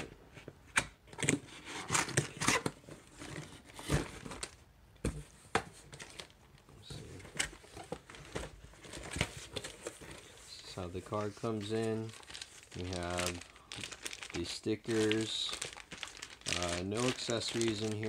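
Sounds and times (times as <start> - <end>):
plastic bag crinkling: 11.1 - 18.0.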